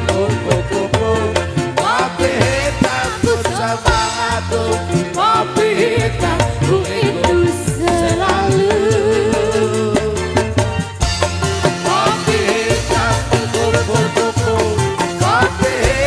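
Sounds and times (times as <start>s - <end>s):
reggae band playing: 0.0s - 16.0s
woman singing: 1.7s - 10.6s.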